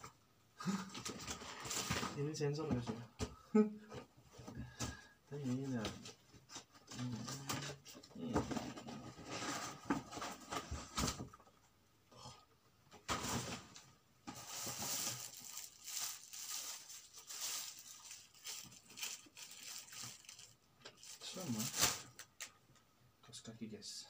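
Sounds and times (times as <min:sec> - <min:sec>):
packaging rustling and crinkling: 0:00.7 - 0:02.2, 0:13.1 - 0:22.5.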